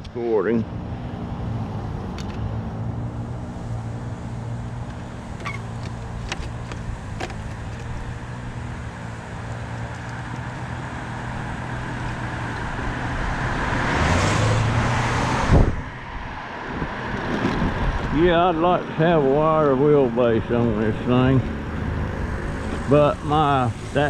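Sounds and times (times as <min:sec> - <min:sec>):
car passing: 0:00.3 - 0:24.0
mobility scooter motor humming: 0:03.2 - 0:13.5
scooter clicks and rattles: 0:04.8 - 0:08.6, 0:09.4 - 0:10.6.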